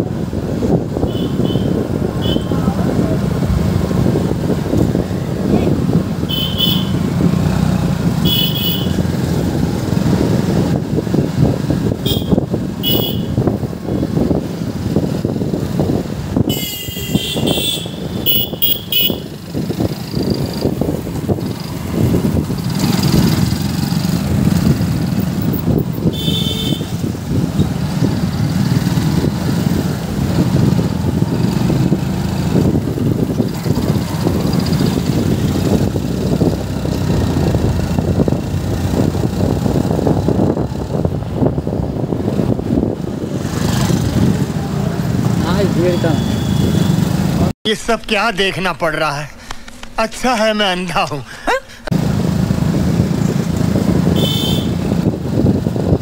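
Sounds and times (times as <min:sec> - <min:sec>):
motorcycle engine rumble: 0:00.0 - 0:47.6, 0:51.3 - 0:56.0
vehicle horn beeps: 0:12.1 - 0:13.4, 0:16.5 - 0:19.3, 0:26.1 - 0:27.0, 0:45.9 - 0:47.0, 0:54.2 - 0:54.8.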